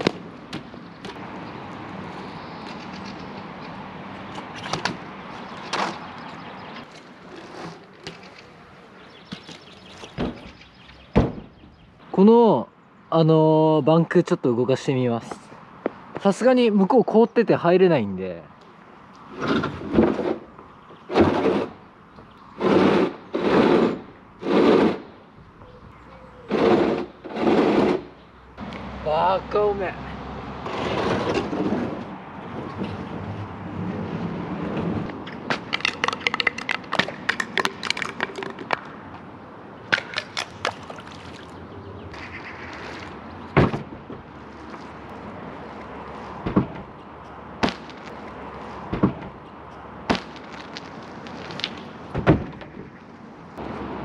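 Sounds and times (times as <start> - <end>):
ramp scraping across wet asphalt: 5.4 - 10.2, 19.3 - 21.8, 22.6 - 25.2, 26.5 - 28.2, 30.6 - 36.7.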